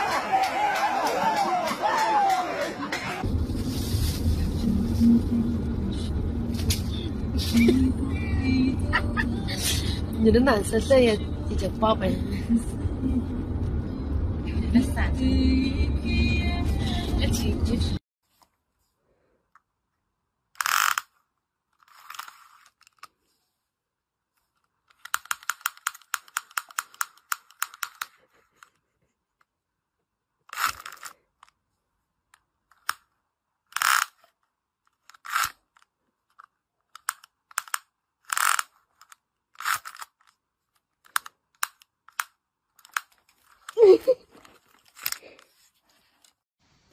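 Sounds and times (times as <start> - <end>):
tape measure zipping and snapping: 6.5 - 7.7, 20.6 - 21.2, 21.8 - 23.1, 24.9 - 28.2, 30.5 - 31.2, 33.7 - 35.9, 37.0 - 40.4
tape measure clicking: 20.6 - 21.2, 21.8 - 23.1, 24.9 - 28.2, 30.5 - 31.2, 33.8 - 34.3, 34.9 - 35.9, 37.0 - 40.4.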